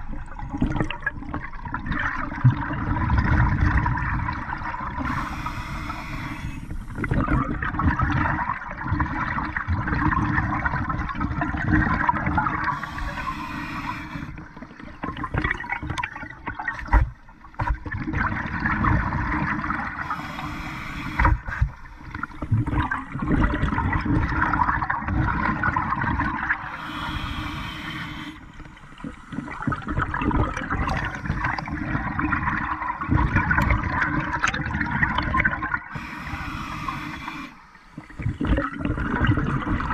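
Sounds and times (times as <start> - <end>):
exhaled air bubbling: 0.0 - 39.9
regulator inhalation hiss: 5.0 - 7.1, 12.7 - 14.4, 20.0 - 22.1, 26.6 - 29.5, 35.9 - 38.3.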